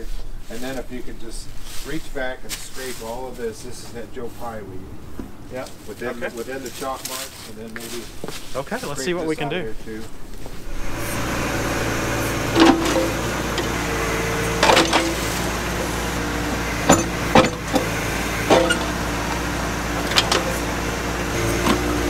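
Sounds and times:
hydraulic whine: 10.4s - 22.0s
tractor diesel engine under load: 10.6s - 22.0s
metallic clanks of backhoe bucket: 12.4s - 22.0s.

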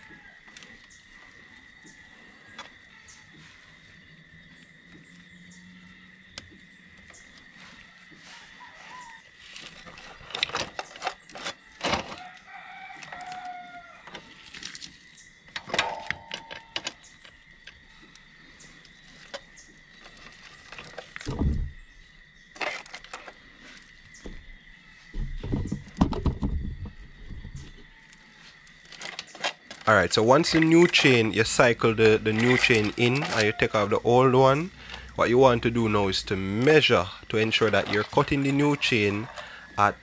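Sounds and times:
rooster crowing: 0.0s - 0.6s, 7.9s - 9.3s, 12.1s - 14.4s, 31.0s - 35.0s, 37.5s - 40.0s
sharp clicks and knocks: 25.2s - 27.0s.

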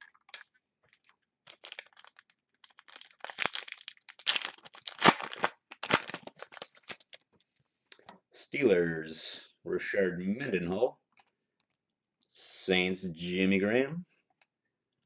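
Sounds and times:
foil wrapper crinkling and tearing: 0.0s - 7.2s.

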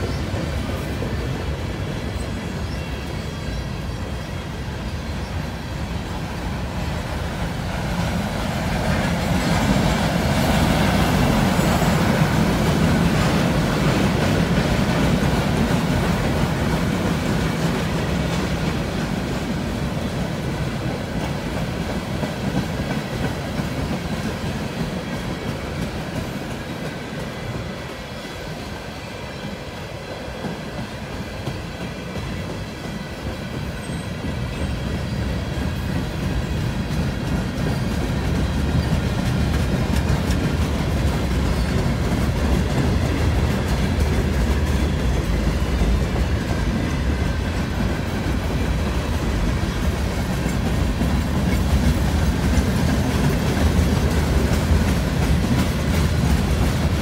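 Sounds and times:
train wheels rumbling on rails: 0.0s - 57.0s
faint high wheel squeal: 9.6s - 12.4s.

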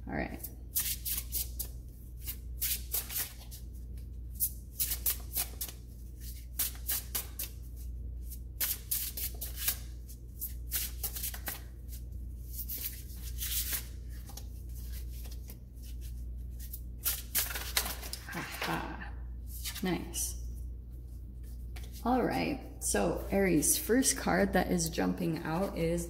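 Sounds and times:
cards being shuffled: 0.7s - 18.9s, 21.4s - 22.0s.

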